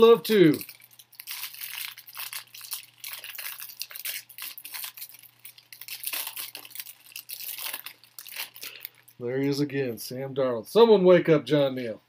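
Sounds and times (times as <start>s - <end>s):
wrapper crinkling and rustling: 0.0s - 9.6s
faint steady hum: 0.0s - 12.0s.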